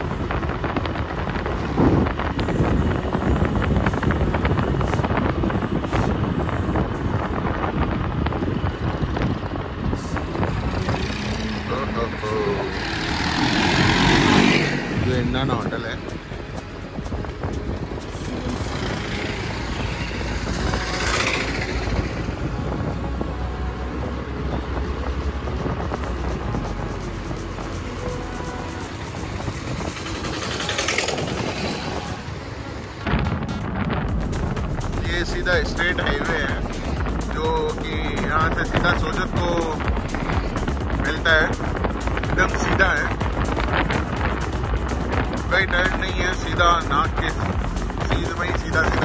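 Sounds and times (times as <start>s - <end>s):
scooter engine running: 0.0s - 32.9s
auto-rickshaw passing: 0.0s - 49.0s
road noise: 0.0s - 49.0s
wind buffeting microphone: 0.0s - 49.0s.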